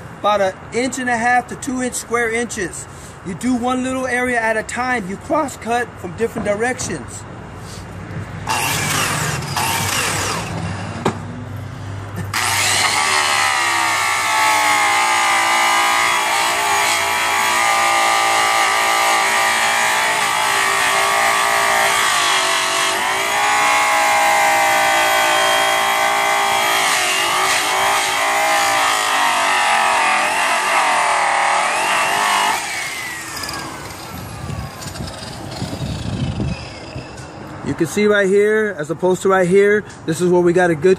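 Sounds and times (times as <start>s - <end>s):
rotary polisher whine: 12.3s - 37.3s.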